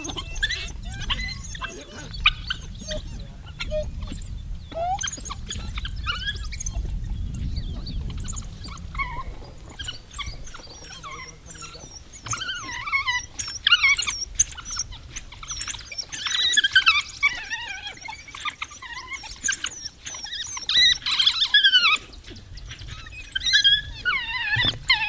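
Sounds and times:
wild dogs twittering and squealing: 0:00.0 - 0:25.0
low rumble: 0:00.7 - 0:12.0.

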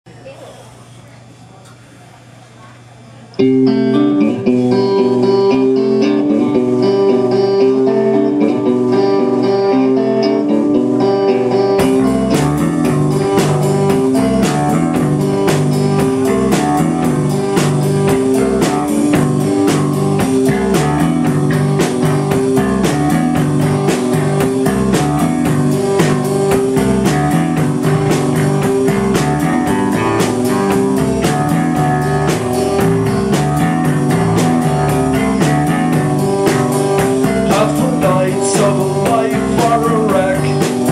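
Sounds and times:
bass guitar: 0:03.4 - 0:40.9
electric guitar riff: 0:03.4 - 0:40.9
drums with cymbals: 0:11.8 - 0:40.9.

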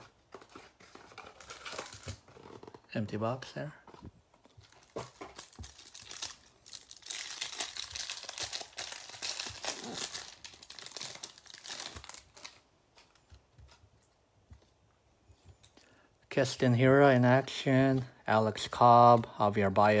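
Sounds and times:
plastic wrapper tearing and crinkling: 0:00.0 - 0:02.9, 0:03.9 - 0:13.8.

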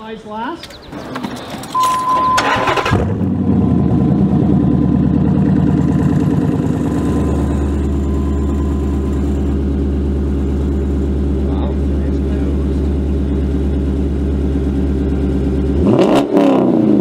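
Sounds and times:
engine cranking: 0:00.6 - 0:03.4
car engine idling loudly: 0:02.4 - 0:17.0.

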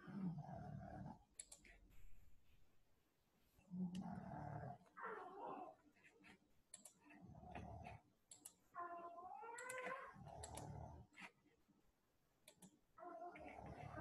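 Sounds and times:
mouse and keyboard clicks: 0:01.4 - 0:01.8, 0:06.2 - 0:07.1, 0:08.3 - 0:08.6, 0:09.6 - 0:11.4, 0:12.4 - 0:12.8.

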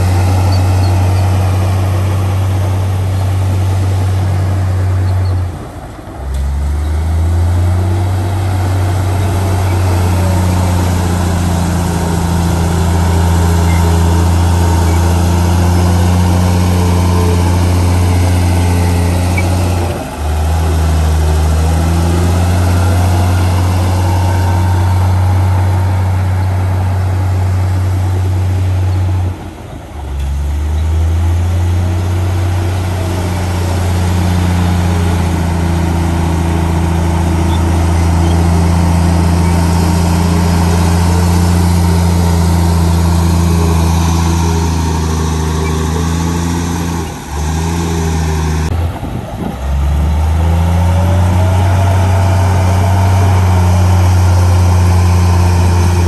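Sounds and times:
bulldozer diesel engine: 0:00.0 - 0:56.0.

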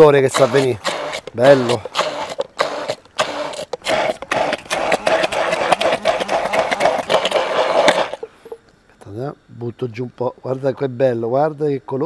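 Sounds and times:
stick blender running: 0:00.0 - 0:08.6.

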